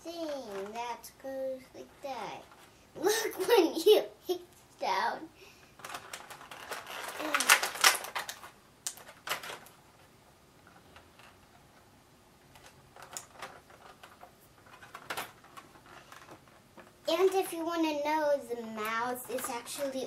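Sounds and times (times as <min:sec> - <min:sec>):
plastic packaging crinkling: 0:05.8 - 0:09.8, 0:12.5 - 0:17.4.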